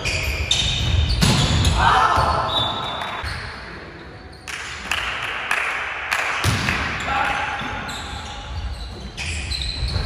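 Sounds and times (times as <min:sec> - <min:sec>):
volleyball hit: 0:06.3 - 0:07.0.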